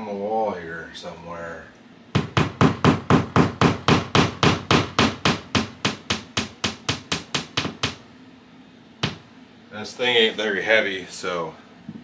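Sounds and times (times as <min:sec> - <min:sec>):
hammer tapping nail into drywall: 0:02.2 - 0:08.0.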